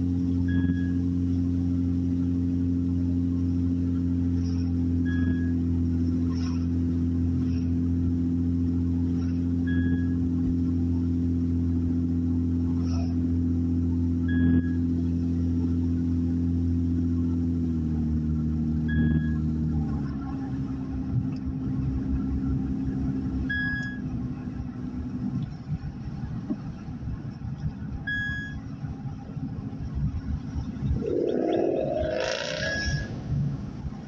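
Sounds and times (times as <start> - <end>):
car engine hum: 0.0 - 34.0
road and tyre rumble: 0.0 - 34.0
short high beep: 31.6 - 33.2.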